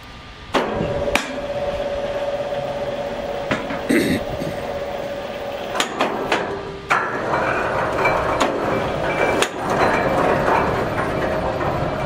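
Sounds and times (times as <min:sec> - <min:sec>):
sawmill machinery running: 0:00.0 - 0:12.0.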